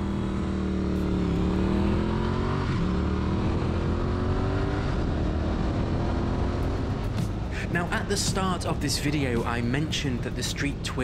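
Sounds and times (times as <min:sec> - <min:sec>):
motorcycle engine accelerating: 0:00.0 - 0:10.6.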